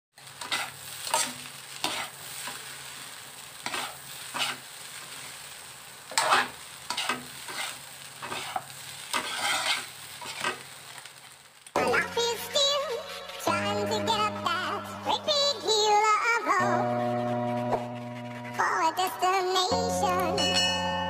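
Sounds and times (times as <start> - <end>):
rice sizzling: 0.1 - 21.0
metal spatulas scraping a wok: 0.2 - 2.7, 3.6 - 5.3, 6.1 - 10.6, 11.8 - 15.9, 16.6 - 19.8.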